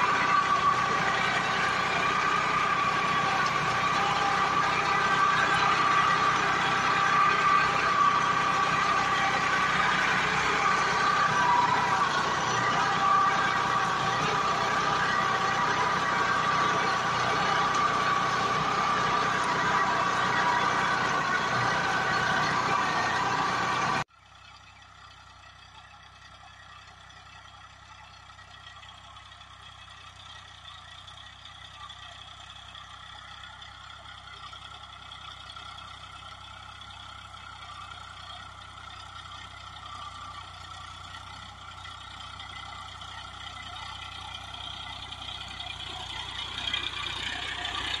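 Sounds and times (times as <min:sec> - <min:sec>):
distant tractor approaching: 0:00.0 - 0:48.0
tractor diesel engine: 0:00.0 - 0:48.0.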